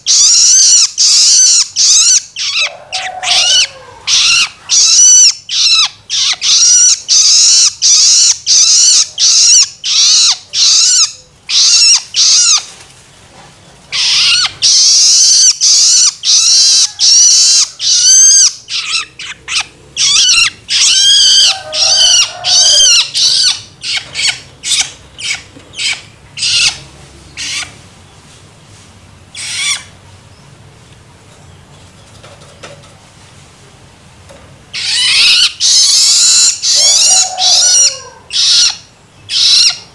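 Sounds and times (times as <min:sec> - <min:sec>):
bird begging calls: 0:13.9 - 0:27.8, 0:29.3 - 0:30.0, 0:34.8 - 0:39.9.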